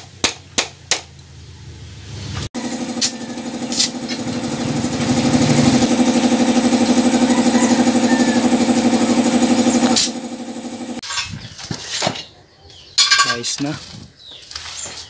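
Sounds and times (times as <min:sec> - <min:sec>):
air compressor pulsing drone: 0:02.6 - 0:11.0.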